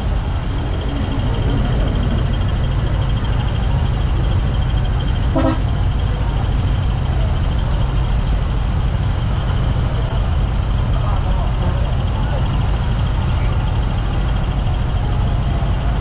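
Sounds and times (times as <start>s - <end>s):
high pulsing tone: 0.0s - 6.7s
diesel trucks idling: 0.0s - 16.0s
truck horn toot: 5.1s - 6.1s.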